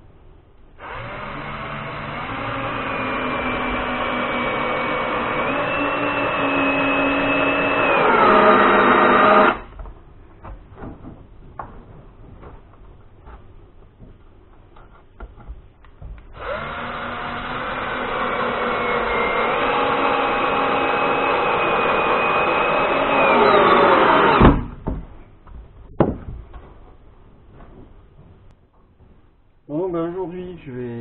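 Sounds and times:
cordless drill whining: 0.8s - 9.7s, 16.4s - 24.5s
handling knocks: 24.4s - 29.4s.

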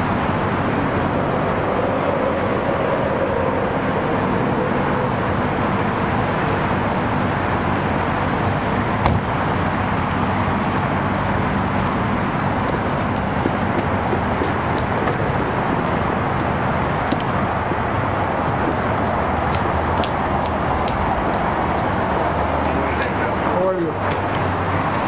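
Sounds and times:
street traffic noise: 0.0s - 25.0s
car door shutting: 9.0s - 9.3s.

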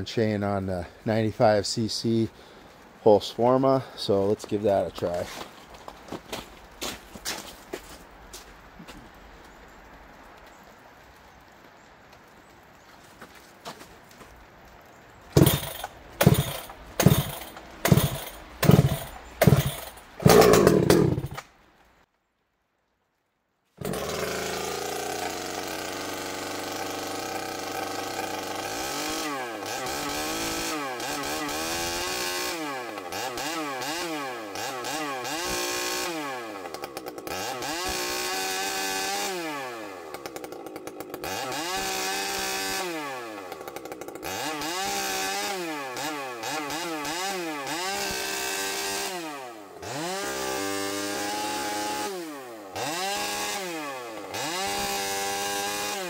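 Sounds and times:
chainsaw cutting a log: 15.4s - 21.4s, 23.8s - 56.0s.

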